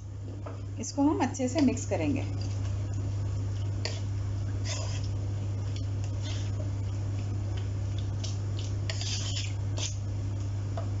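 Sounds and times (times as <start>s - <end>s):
steady low hum: 0.0s - 11.0s
spatula scraping a pan: 3.8s - 5.1s, 6.2s - 6.6s, 8.9s - 10.0s.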